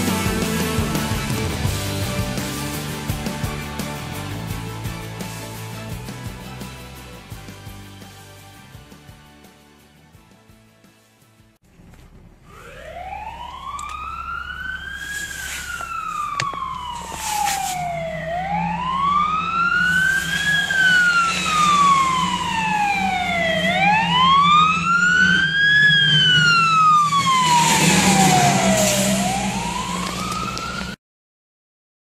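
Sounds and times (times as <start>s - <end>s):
fire engine siren wailing: 12.4s - 31.0s.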